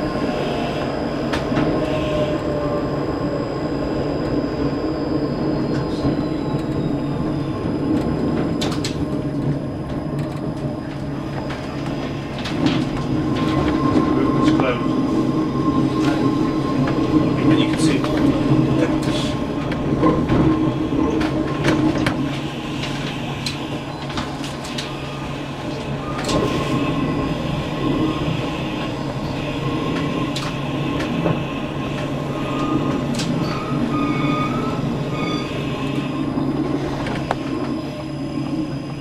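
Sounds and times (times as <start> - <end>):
tram wheels rumbling on rails: 0.0 - 39.0
rail joint clicks: 0.7 - 2.8, 5.6 - 39.0
high wheel squeals: 32.1 - 37.0.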